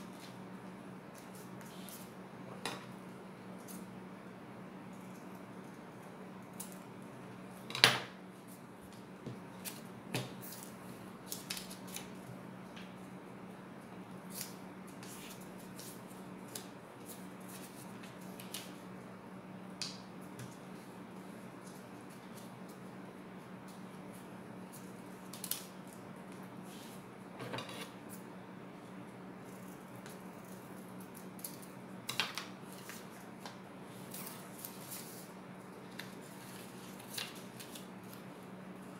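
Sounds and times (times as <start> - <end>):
paper being folded and creased: 35.9 - 38.2.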